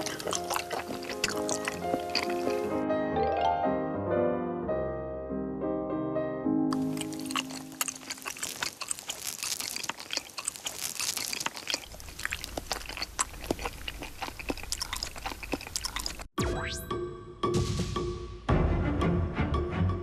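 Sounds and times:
wet chewing mouth sounds: 0.0s - 2.8s, 6.7s - 16.4s.

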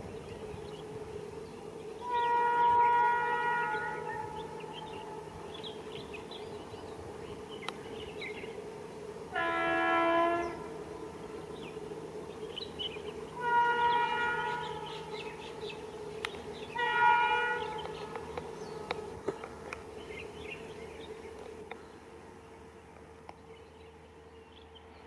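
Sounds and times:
steady low hum: 0.0s - 25.0s
locomotive horn blasts: 2.0s - 5.3s, 9.3s - 10.8s, 13.3s - 15.4s, 16.6s - 18.9s.

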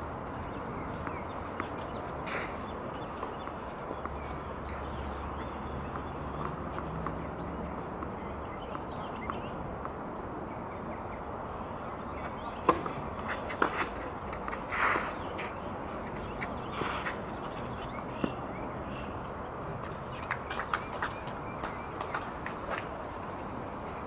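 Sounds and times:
tennis ball struck by racket: 12.6s - 14.5s.

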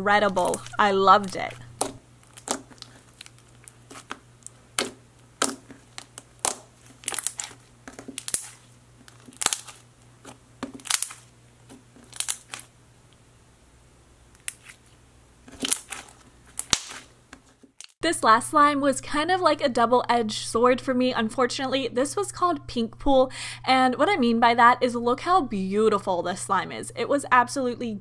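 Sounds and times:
slime squished by hand: 0.4s - 12.7s, 14.4s - 17.1s.

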